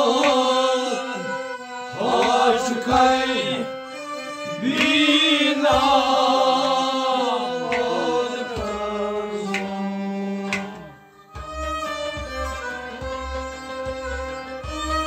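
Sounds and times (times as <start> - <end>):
person singing: 0.0 - 11.1
harmonium chords: 0.0 - 15.0.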